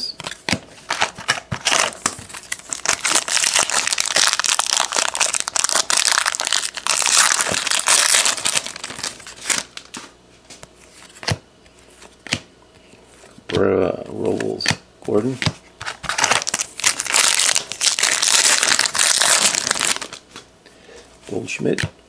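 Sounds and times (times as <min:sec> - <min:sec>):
foil wrapper crinkling and tearing: 0:00.9 - 0:10.0, 0:16.0 - 0:20.2.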